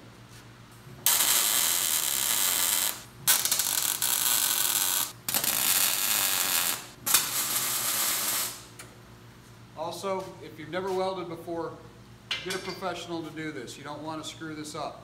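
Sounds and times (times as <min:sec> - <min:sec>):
welding arc crackling: 0:00.9 - 0:08.8.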